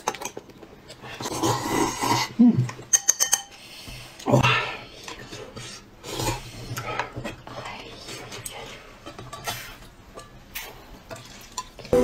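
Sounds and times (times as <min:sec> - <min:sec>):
slurping noodles: 0:01.1 - 0:02.4.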